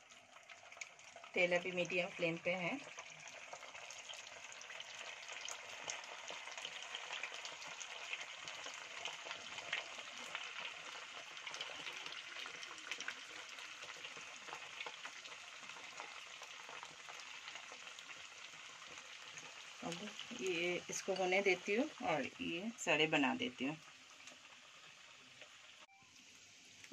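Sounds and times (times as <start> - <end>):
small crackling pops: 0.0 - 1.2
patties frying in hot oil: 0.0 - 26.9.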